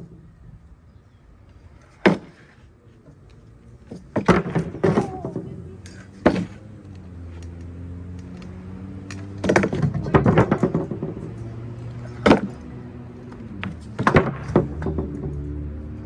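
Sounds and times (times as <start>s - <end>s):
stunt scooter clattering on ramp: 3.8s - 6.8s, 9.2s - 12.7s, 13.6s - 15.5s.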